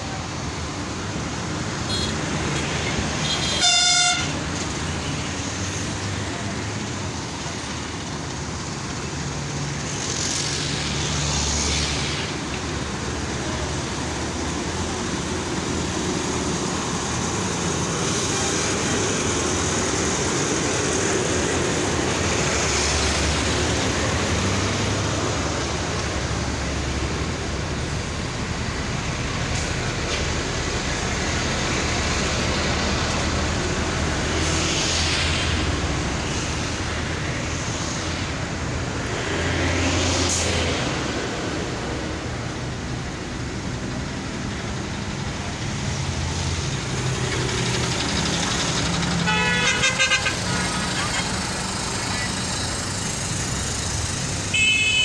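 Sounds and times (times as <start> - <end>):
buses and cars passing: 0.0 - 55.0
vehicle horn toot: 3.2 - 4.4, 49.2 - 50.8, 54.5 - 55.0.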